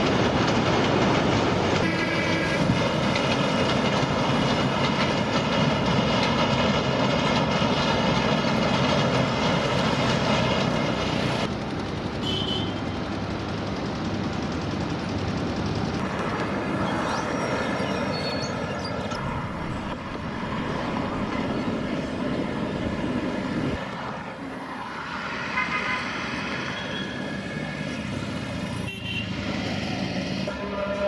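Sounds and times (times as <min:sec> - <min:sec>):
engine rumble: 0:00.0 - 0:26.4
horn tooting: 0:01.8 - 0:02.8, 0:12.2 - 0:13.0, 0:30.5 - 0:31.0.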